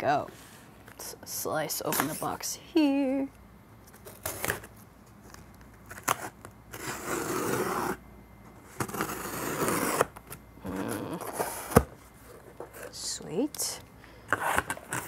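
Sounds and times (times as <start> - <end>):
packing tape tearing from cardboard: 4.0 - 4.7, 5.8 - 8.0, 8.7 - 11.9.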